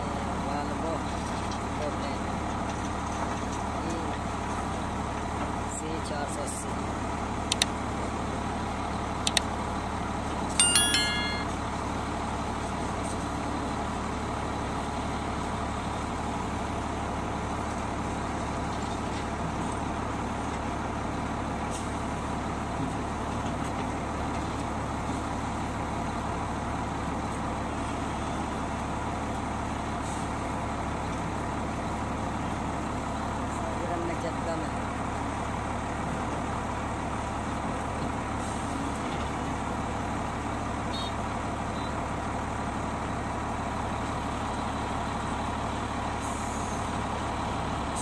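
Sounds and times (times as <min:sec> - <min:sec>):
excavator diesel engine running: 0:00.0 - 0:48.0
clicks: 0:09.3 - 0:09.5
short bright chime: 0:10.6 - 0:11.7.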